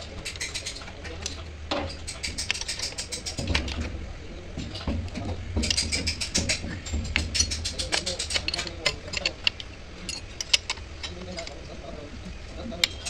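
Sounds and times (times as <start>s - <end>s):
spanners clicking on bolt: 0.2s - 3.8s, 5.6s - 11.6s.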